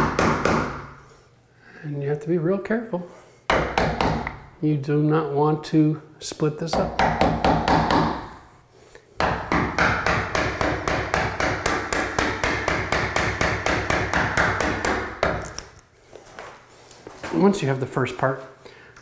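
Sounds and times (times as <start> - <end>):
hammer tapping chisel: 6.7 - 8.2, 9.2 - 15.7.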